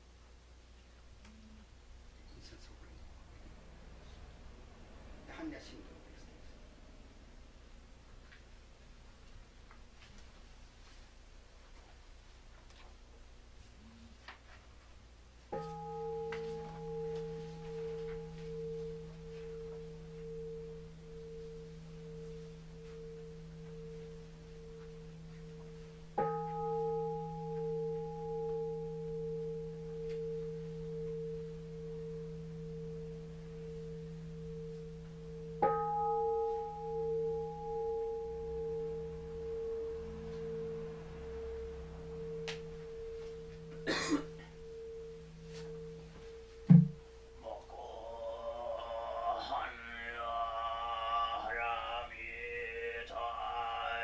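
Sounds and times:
bowl bell ringing: 0:15.5 - 0:49.7.

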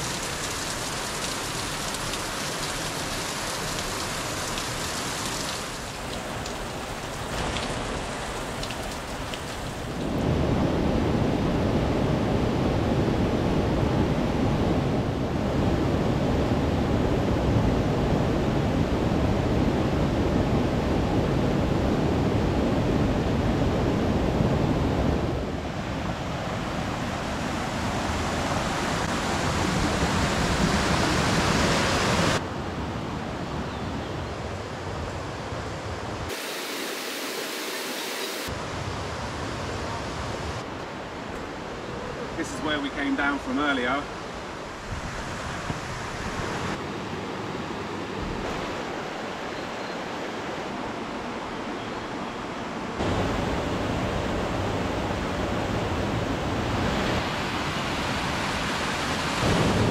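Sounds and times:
stream rushing over rocks: 0:00.0 - 0:10.3, 0:25.6 - 0:32.5, 0:36.0 - 0:59.9.

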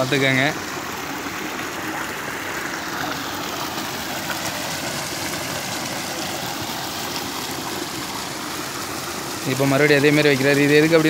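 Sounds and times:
water rushing over a dam: 0:00.0 - 0:11.0.

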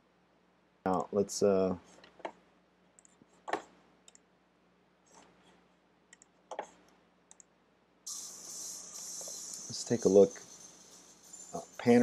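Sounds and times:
computer mouse clicking: 0:03.0 - 0:04.2, 0:06.1 - 0:07.5.

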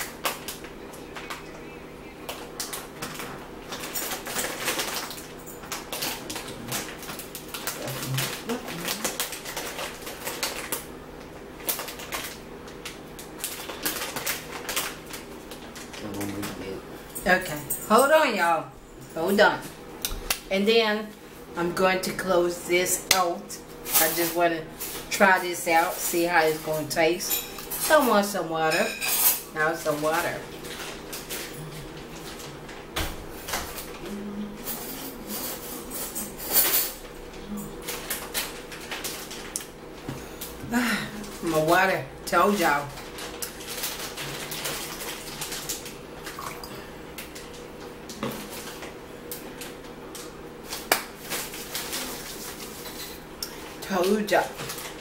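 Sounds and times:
dishes and cutlery clinking: 0:28.7 - 0:29.5.

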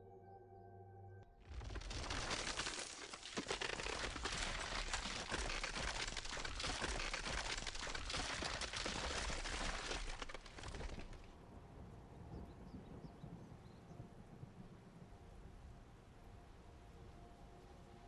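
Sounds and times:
dense crackling: 0:01.4 - 0:11.3.

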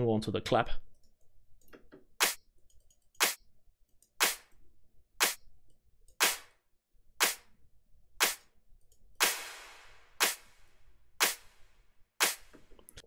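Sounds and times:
electronic drum clap hits: 0:02.2 - 0:02.4, 0:03.2 - 0:03.4, 0:04.2 - 0:04.5, 0:05.2 - 0:05.4, 0:06.2 - 0:06.6, 0:07.2 - 0:07.5, 0:08.2 - 0:08.5, 0:09.2 - 0:12.6.

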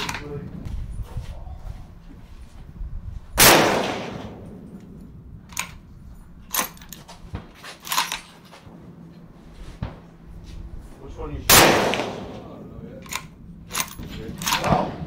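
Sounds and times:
rifle bolt clicking and clacking: 0:03.8 - 0:05.8, 0:06.5 - 0:07.1, 0:07.8 - 0:08.4, 0:13.0 - 0:14.8.

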